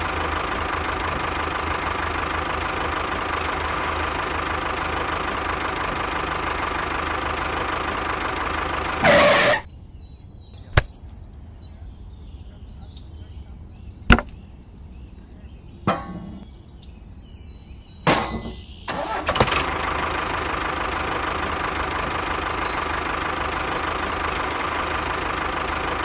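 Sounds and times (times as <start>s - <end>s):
model tractor engine drone: 0.0s - 9.7s, 18.9s - 26.0s.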